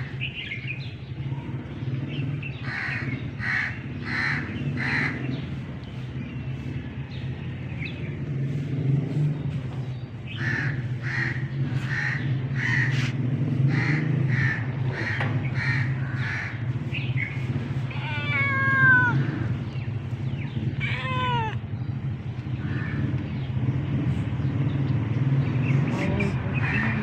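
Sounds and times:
low traffic rumble: 0:00.0 - 0:27.0
crow cawing: 0:02.7 - 0:05.2
cat meowing: 0:17.9 - 0:19.5, 0:20.8 - 0:21.6.

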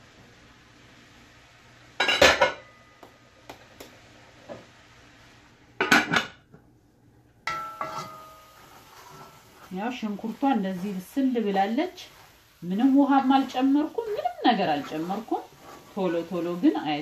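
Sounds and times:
metal pot lid clanking: 0:07.5 - 0:08.5.

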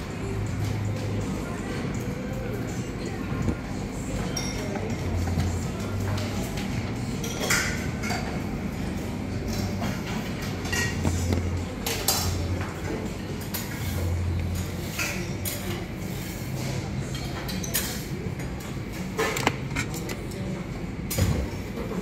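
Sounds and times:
dishes and cutlery clinking: 0:03.4 - 0:20.5.

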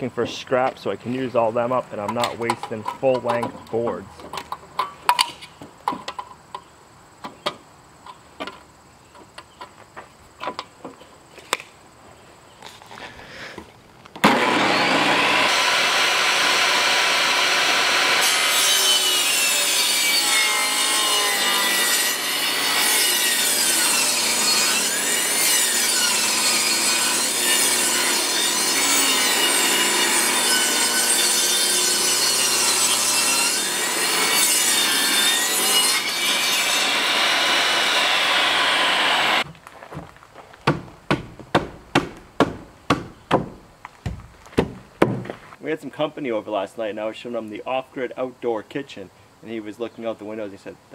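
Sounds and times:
table saw ripping board: 0:14.2 - 0:39.4.

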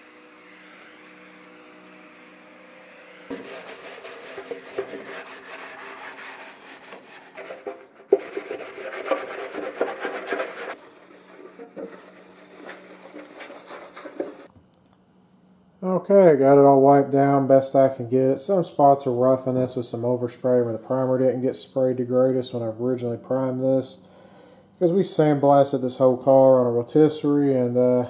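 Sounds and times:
towel rubbing on sheet metal: 0:03.3 - 0:14.5.

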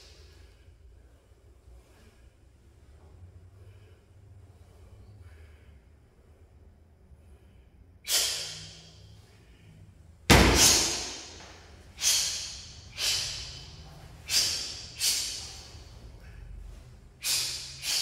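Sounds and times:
sharp hissing exhalations: 0:08.1 - 0:09.0, 0:10.6 - 0:15.9, 0:17.2 - 0:18.0.

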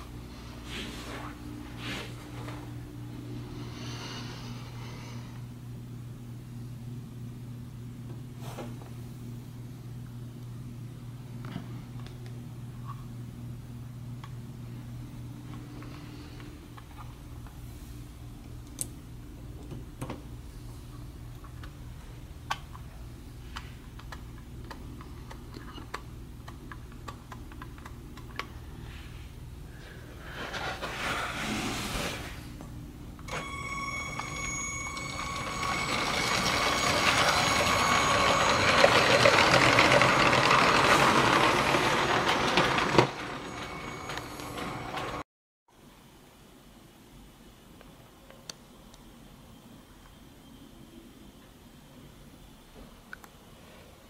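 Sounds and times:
high ringing tones: 0:33.3 - 0:45.2
wheels clicking on rail joints: 0:33.3 - 0:45.2
toy train motor hum: 0:33.4 - 0:43.6.

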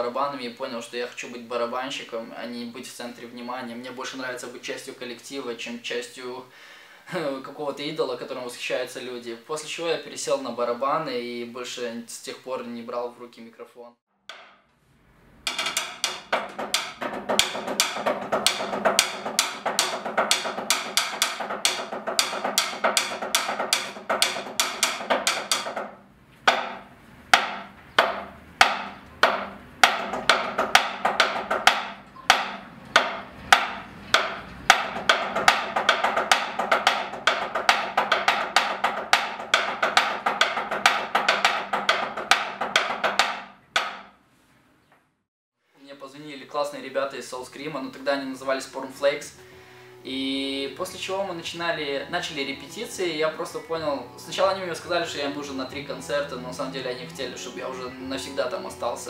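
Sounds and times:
drumsticks on practice pad: 0:14.3 - 0:14.7, 0:15.4 - 0:44.1.

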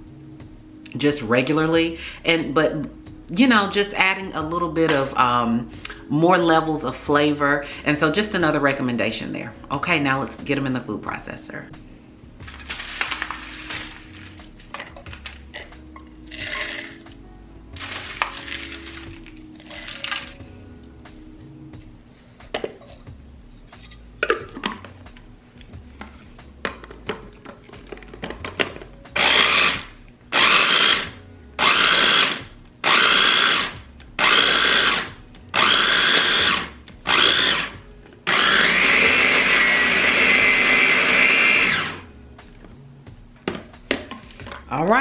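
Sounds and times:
electric food chopper whirring: 0:12.5 - 0:14.0, 0:16.3 - 0:17.0, 0:17.8 - 0:20.4, 0:29.2 - 0:42.1.

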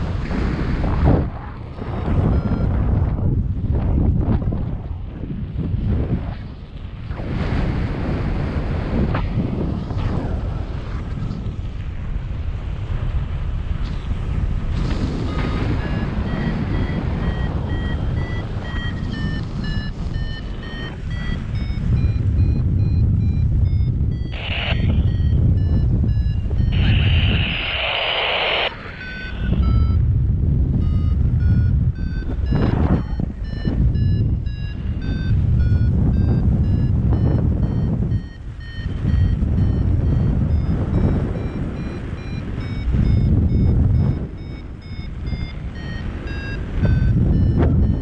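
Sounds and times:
wind buffeting microphone: 0:00.0 - 0:48.0
variometer beeping: 0:02.0 - 0:02.8, 0:15.2 - 0:48.0.

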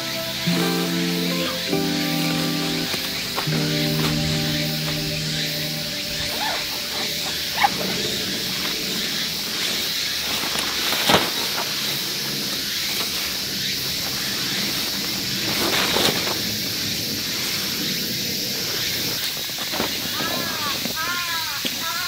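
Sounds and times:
steady high hiss: 0:00.0 - 0:22.0
tent snapping open: 0:09.6 - 0:13.2, 0:15.4 - 0:16.5.

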